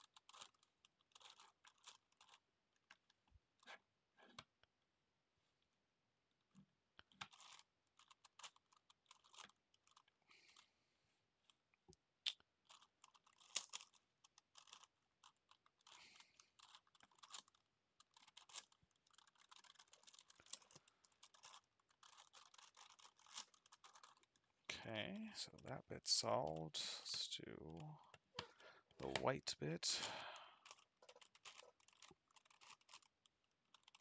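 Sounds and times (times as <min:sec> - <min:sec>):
plastic puzzle clicking as turned: 0:00.0 - 0:03.2, 0:07.0 - 0:10.6, 0:12.3 - 0:24.5, 0:30.6 - 0:34.0.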